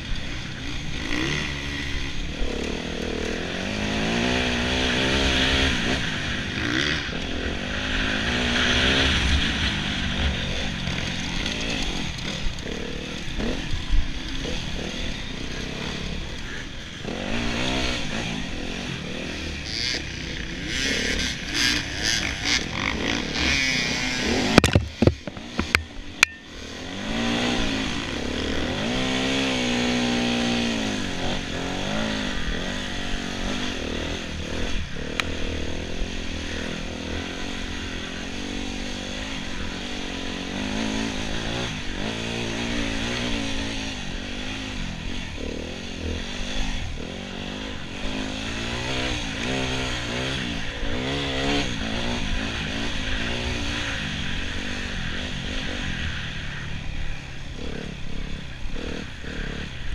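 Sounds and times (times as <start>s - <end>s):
motorcycle engine revving: 0.0s - 59.9s
sharp knocks and clatters: 24.5s - 26.4s.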